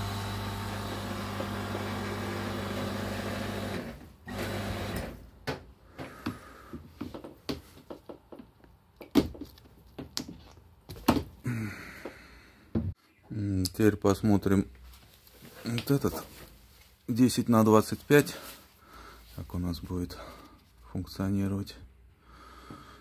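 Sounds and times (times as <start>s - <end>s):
air compressor humming: 0.0s - 5.2s.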